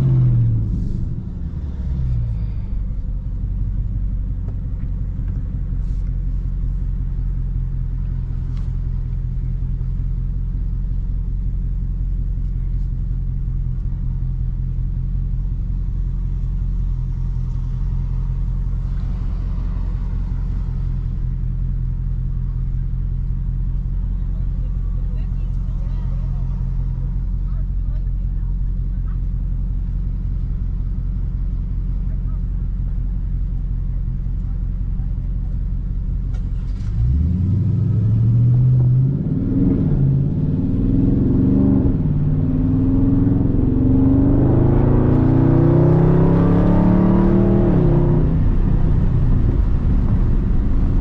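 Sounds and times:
car engine idling: 0:00.0 - 0:51.0.

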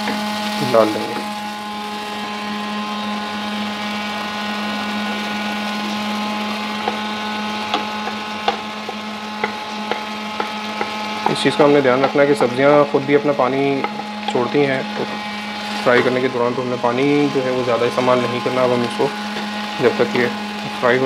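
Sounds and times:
machine hum: 0:00.0 - 0:21.0
wooden spatula knocking on wok: 0:06.8 - 0:07.1, 0:07.7 - 0:11.4, 0:13.8 - 0:15.2.

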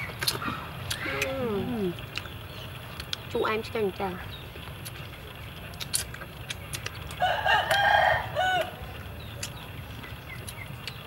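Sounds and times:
rooster crowing: 0:07.2 - 0:08.8.

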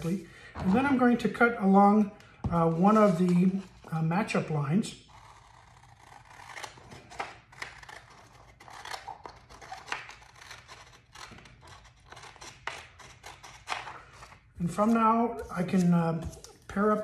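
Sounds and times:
scissors snipping paper: 0:05.1 - 0:14.9.

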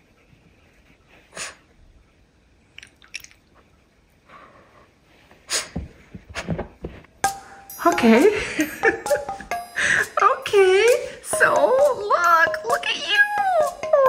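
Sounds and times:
dog sniffing and puffing breath: 0:00.0 - 0:01.8, 0:04.2 - 0:06.7.

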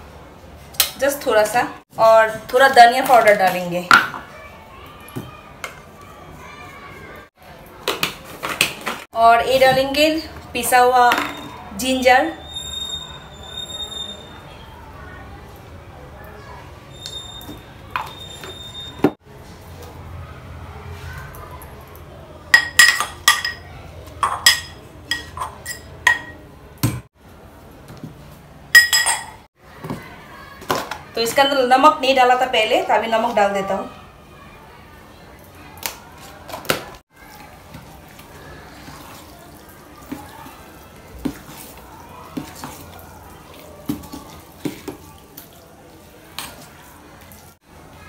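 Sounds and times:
spoon clinking against pot: 0:24.2 - 0:26.4, 0:28.8 - 0:29.4
spoon clinking on steel pot: 0:28.8 - 0:29.4
spoon squelching thick batter: 0:37.3 - 0:47.5.

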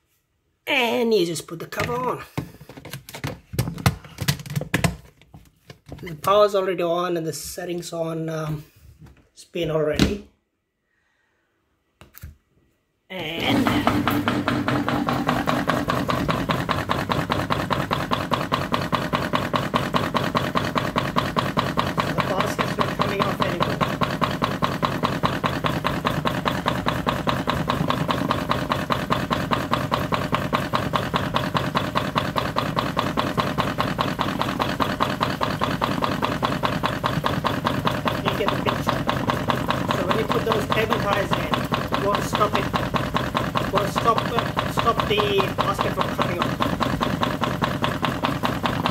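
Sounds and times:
washing machine spinning: 0:13.1 - 0:48.9.

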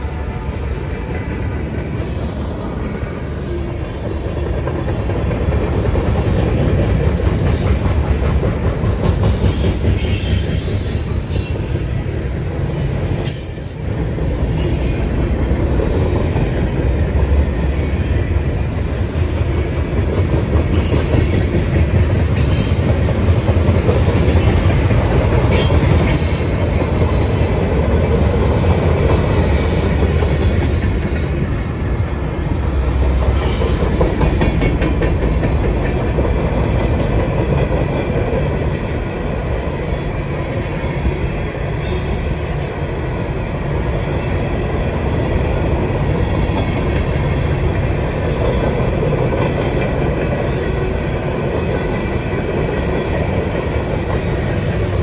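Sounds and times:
train wheels rumbling on rails: 0:00.0 - 0:55.0
high-pitched wheel squeals: 0:30.2 - 0:34.2.

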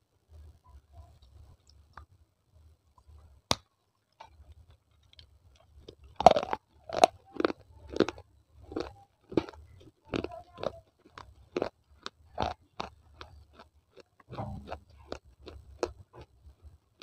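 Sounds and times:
loud crunchy chewing: 0:04.2 - 0:17.0.

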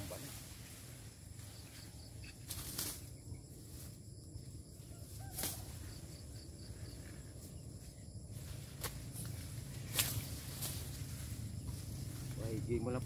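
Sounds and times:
sickle swishing through dry leaves: 0:00.0 - 0:04.1, 0:05.0 - 0:06.1, 0:08.3 - 0:12.6
low steady rumble: 0:06.0 - 0:13.0.

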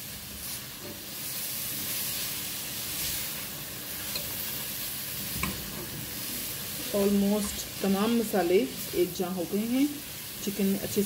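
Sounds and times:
food sizzling in a pot: 0:00.0 - 0:11.0.

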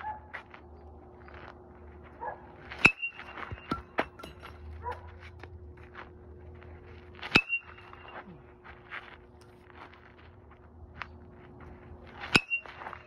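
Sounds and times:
metal bat hitting baseball: 0:02.8 - 0:04.9.

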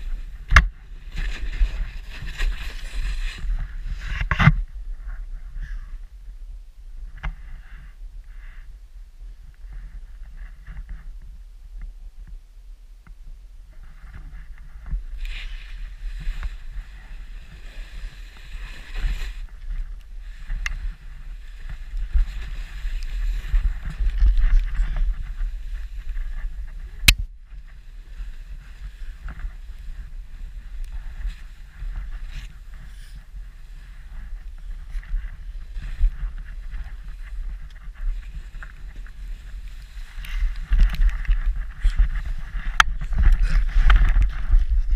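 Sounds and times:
snow sliding under skis: 0:00.0 - 0:06.0, 0:13.8 - 0:44.9
wind buffeting microphone: 0:13.3 - 0:44.9.

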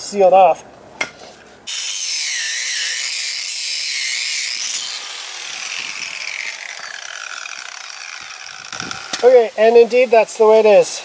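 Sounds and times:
angle grinder cutting metal: 0:01.7 - 0:09.6.

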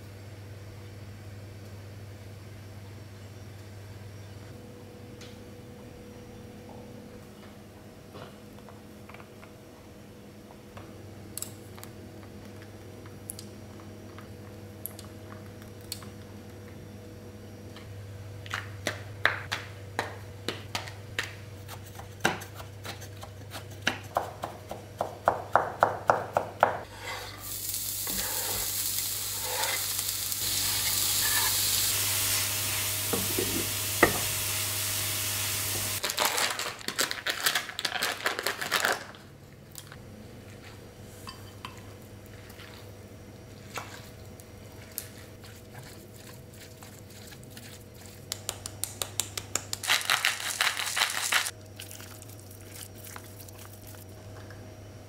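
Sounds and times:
food sizzling in a pan: 0:26.9 - 0:36.0.

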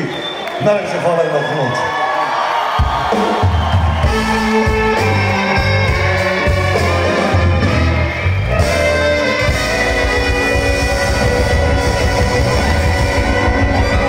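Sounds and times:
live band playing loudly: 0:02.8 - 0:14.0.

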